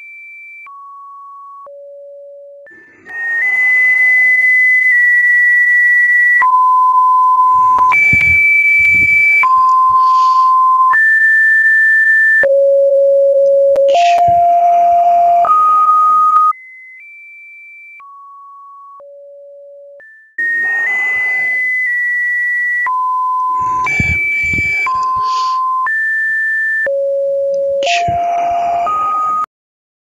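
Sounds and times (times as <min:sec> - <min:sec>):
electronic beep tones: 0:02.7 - 0:16.6, 0:20.0 - 0:29.5.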